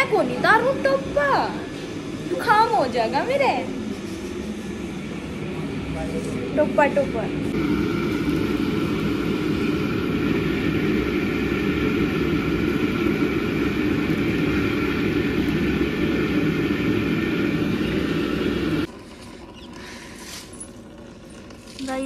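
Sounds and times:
steady tones: 0.0 - 18.9
motor running: 6.7 - 22.0.

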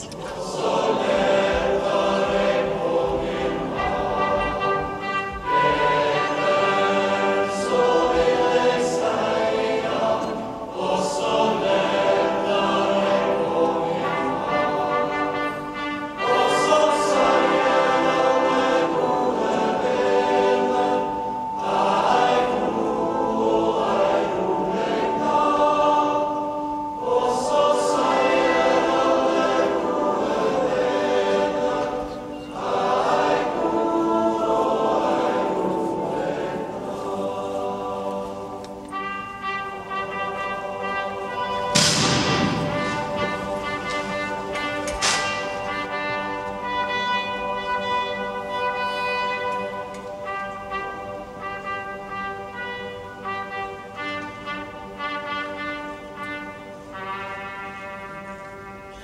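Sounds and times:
choir singing: 0.0 - 59.0.

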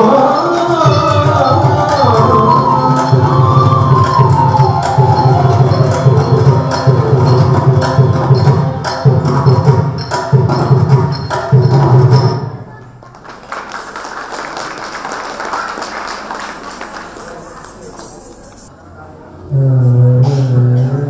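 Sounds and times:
classical dance music: 0.0 - 9.0
background hubbub: 0.0 - 21.0
drum beating: 0.7 - 12.7.

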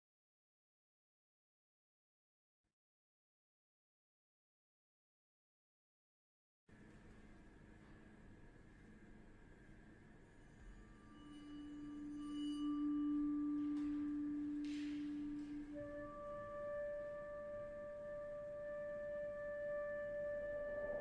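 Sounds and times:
held low note: 10.2 - 21.0
higher held note: 11.1 - 21.0.

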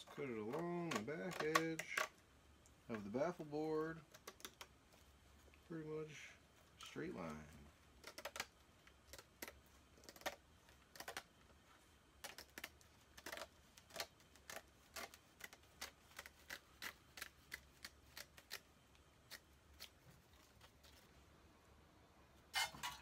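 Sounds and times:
scissors snipping cloth: 12.2 - 18.6.

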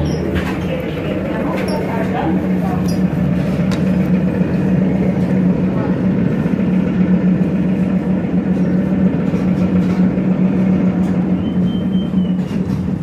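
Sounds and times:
trolleybus electric hum: 0.0 - 13.0.

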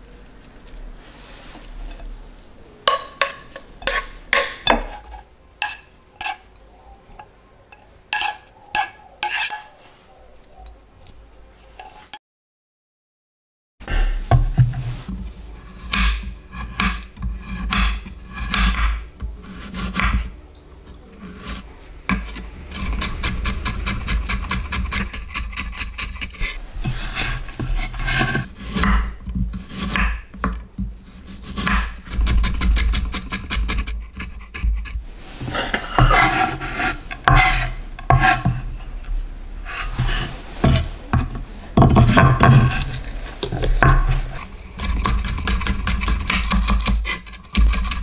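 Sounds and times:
knife chopping on cutting board: 15.9 - 19.0, 31.2 - 34.8.

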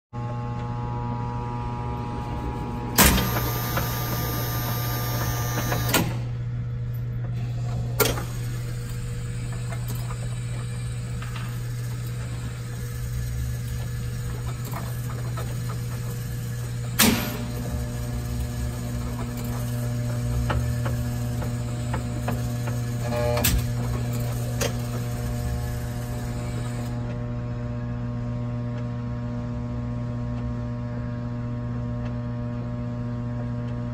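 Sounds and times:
steady electrical hum: 0.2 - 33.9
mechanical whirr: 1.5 - 6.5
sharp mechanical clunks: 2.9 - 6.4, 17.0 - 17.8.

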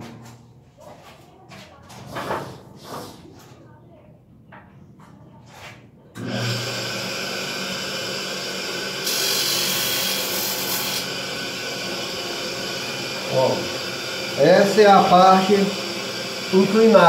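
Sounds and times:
electric grinding tool running: 6.2 - 17.0
grinder grinding metal: 8.5 - 17.0.

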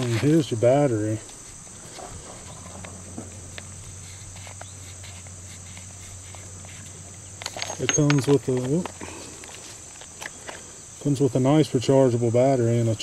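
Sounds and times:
high-pitched insect trilling: 0.0 - 13.0
plastic earmuffs clicking: 2.4 - 10.6.

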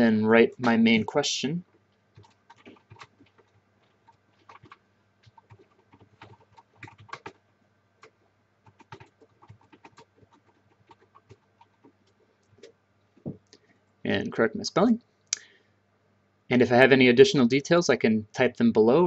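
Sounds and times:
computer keyboard typing: 0.5 - 12.8.

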